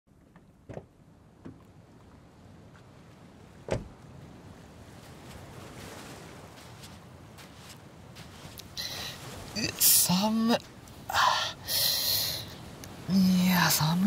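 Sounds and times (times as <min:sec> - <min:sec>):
car door latch clicks: 0:00.6 - 0:01.6, 0:03.7 - 0:03.9
car door slamming: 0:00.6 - 0:01.6, 0:03.6 - 0:04.0
sea surf rushing: 0:02.3 - 0:14.0.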